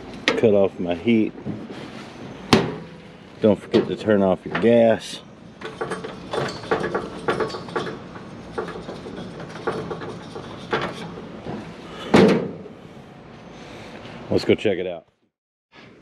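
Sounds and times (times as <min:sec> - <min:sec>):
valve handwheel clicking and creaking: 0:05.6 - 0:11.2.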